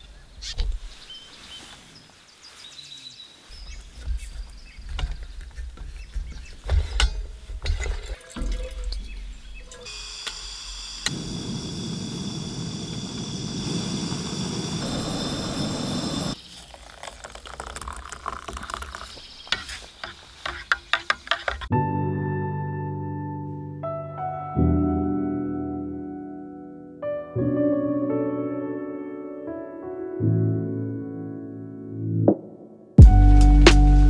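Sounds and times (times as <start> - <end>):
gas burner hissing: 9.8 - 16.4
spoon stirring in steel cup: 16.8 - 21.7.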